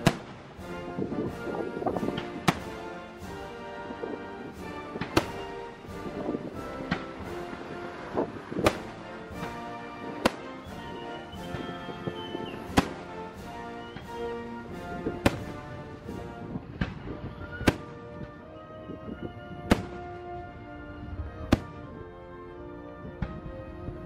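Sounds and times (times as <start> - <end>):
fireworks shells bursting: 0.0 - 17.9
band music: 0.0 - 19.0.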